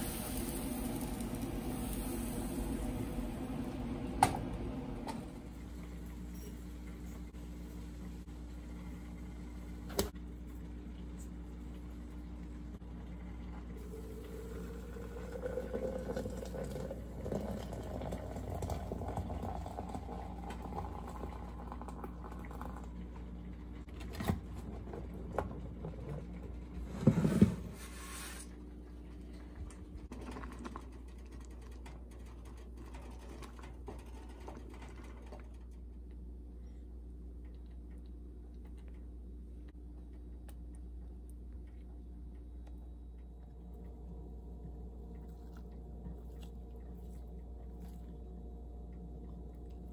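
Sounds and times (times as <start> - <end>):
liquid pouring into container: 13.1 - 23.2.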